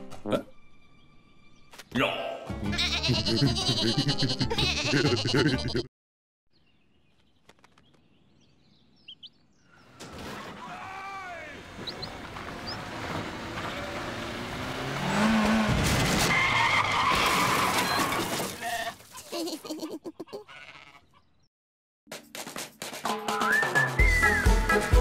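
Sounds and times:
cartoon sheep bleating: 2.7s - 5.9s, 18.6s - 21.1s.

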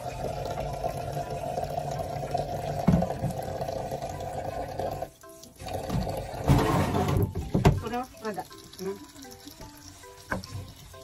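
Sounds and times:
tap running into sink: 2.7s - 3.7s, 5.6s - 11.0s
knock: 5.9s - 7.8s.

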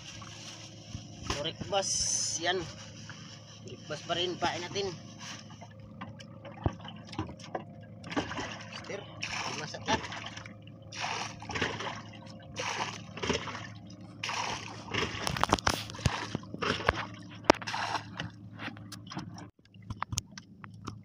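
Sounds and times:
water splashing against boat: 0.0s - 21.0s
sharp clicks and knocks: 14.9s - 21.0s.

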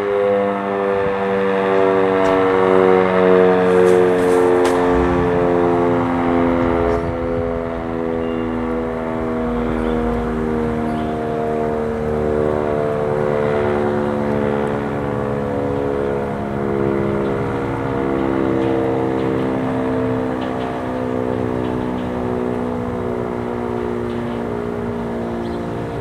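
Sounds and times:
warning siren alert tone: 0.0s - 26.0s.

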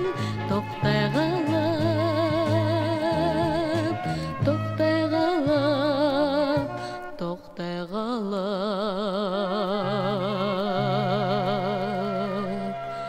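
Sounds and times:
woman singing long held note: 4.8s - 13.0s.

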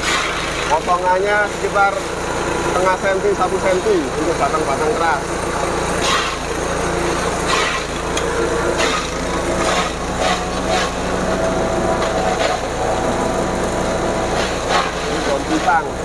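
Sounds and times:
motor humming: 0.0s - 16.0s
blades chopping stalks: 6.0s - 6.6s, 7.4s - 8.1s, 8.7s - 11.4s, 14.3s - 15.8s.

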